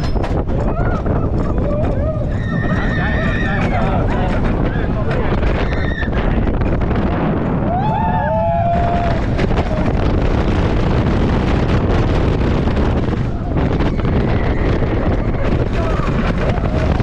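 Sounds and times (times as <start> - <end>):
roller coaster train roaring: 0.0 - 17.0
wind buffeting microphone: 0.0 - 17.0
rider screaming: 0.6 - 4.0.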